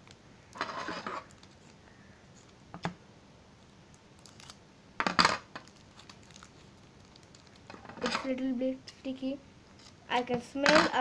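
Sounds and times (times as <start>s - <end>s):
plastic wrapper crinkling: 0.0s - 1.8s, 3.9s - 4.6s, 5.5s - 8.4s, 9.8s - 10.0s.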